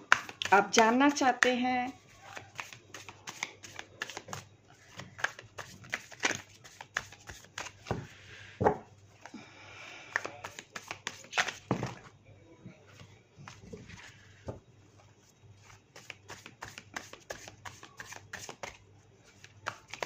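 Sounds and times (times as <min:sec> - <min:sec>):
cards being shuffled: 0:00.1 - 0:00.9, 0:02.2 - 0:08.0, 0:10.1 - 0:11.8, 0:15.6 - 0:20.0.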